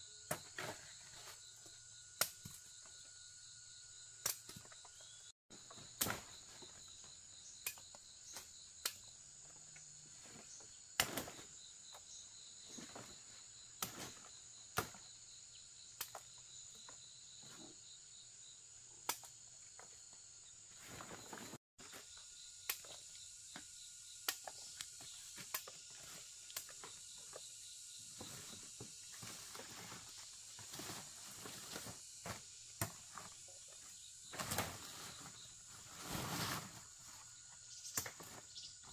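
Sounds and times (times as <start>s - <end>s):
insects buzzing: 0.0s - 38.9s.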